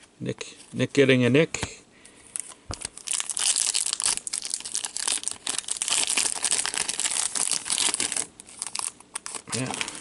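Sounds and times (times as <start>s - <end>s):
foil wrapper crinkling and tearing: 2.4s - 10.0s.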